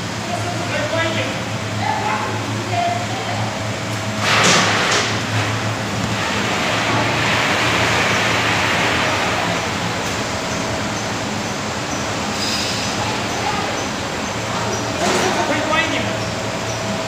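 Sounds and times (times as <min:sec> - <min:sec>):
steady motor hum: 0:00.0 - 0:17.0
rain-like hiss: 0:06.0 - 0:14.5.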